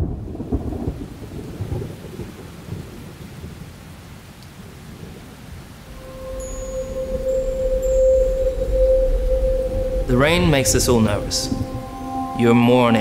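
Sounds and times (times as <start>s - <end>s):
thunder rumbling: 0.0s - 3.6s, 5.8s - 13.0s
heavy rain hissing: 0.0s - 13.0s.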